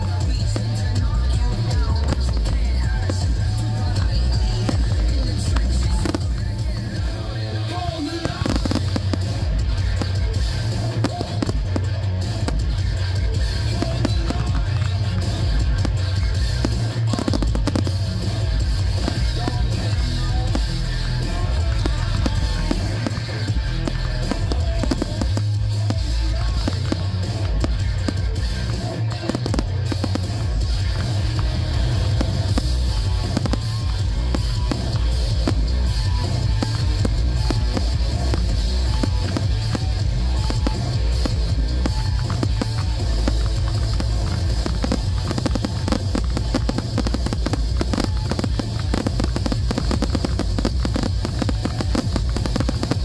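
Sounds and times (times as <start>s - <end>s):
music with drums and bass: 0.0s - 53.0s
firework shells bursting: 8.1s - 53.0s.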